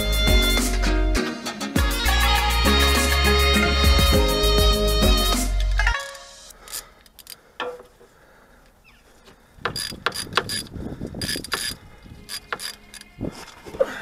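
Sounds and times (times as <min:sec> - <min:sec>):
socket ratchet clicking: 0:09.7 - 0:13.1.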